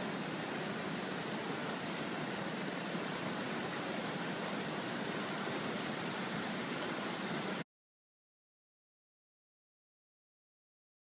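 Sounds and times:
whitewater rapids rushing: 0.0 - 7.6.

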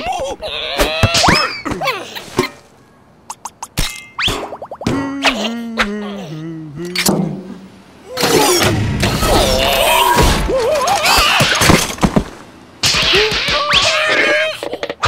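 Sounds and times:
cartoon creatures squealing and jabbering: 0.0 - 2.0, 8.0 - 11.8, 12.8 - 15.0.

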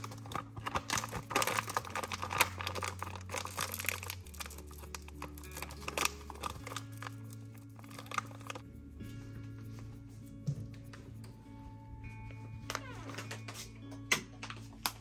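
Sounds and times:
foil coffee bag crinkling: 0.0 - 8.6
soft background music: 0.0 - 15.0.

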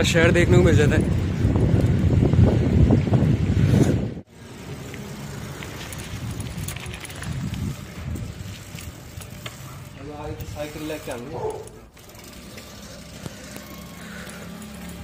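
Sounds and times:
wind buffeting microphone: 0.0 - 4.3, 5.8 - 9.4
bicycle rolling over rough lane: 4.3 - 15.0.

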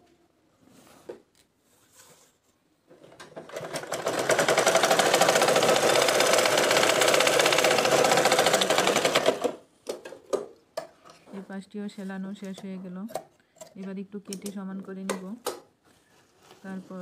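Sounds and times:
sewing machine stitching: 2.9 - 9.6.

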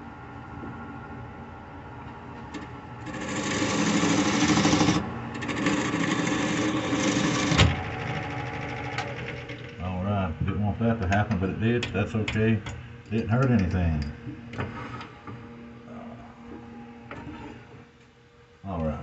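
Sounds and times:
turning tool rasping cut: 3.0 - 9.5
wood lathe hum: 3.0 - 9.8.

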